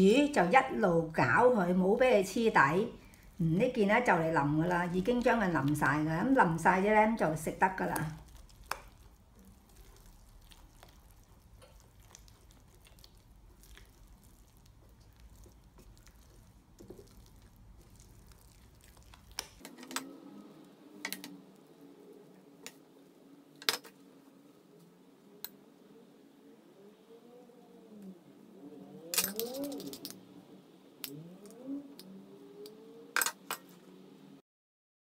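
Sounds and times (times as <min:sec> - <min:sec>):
spatula stirring porridge: 0:02.9 - 0:19.7.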